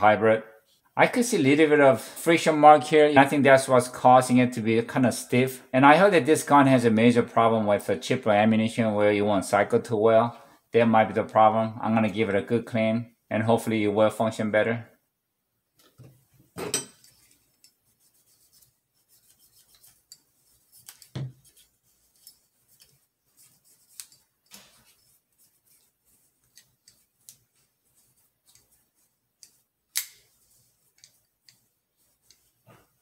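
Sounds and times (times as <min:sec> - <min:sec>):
small metal clicks and scrapes: 0:19.4 - 0:25.0.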